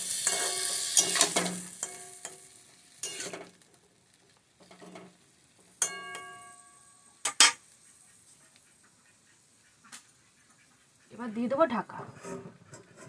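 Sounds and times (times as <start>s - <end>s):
metal spatula scraping a pan: 0.0s - 3.6s, 11.9s - 13.0s
sizzle: 0.0s - 13.0s
pan ringing after strikes: 5.8s - 6.9s.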